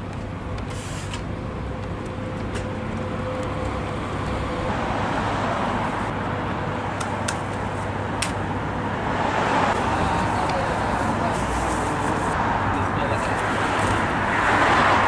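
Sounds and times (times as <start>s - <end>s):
street traffic hum: 0.0s - 15.0s
vehicle passing: 8.0s - 15.0s.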